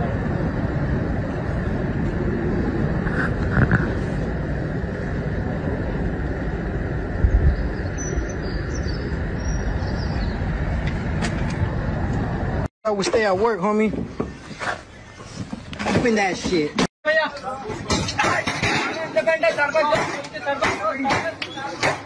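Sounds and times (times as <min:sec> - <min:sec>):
low rumbling background noise: 0:00.0 - 0:12.7.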